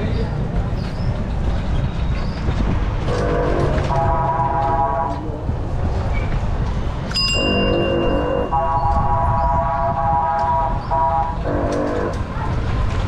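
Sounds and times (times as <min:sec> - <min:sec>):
rickshaw rumble: 0:00.0 - 0:13.0
vehicle horns honking: 0:03.1 - 0:05.2, 0:07.3 - 0:12.3.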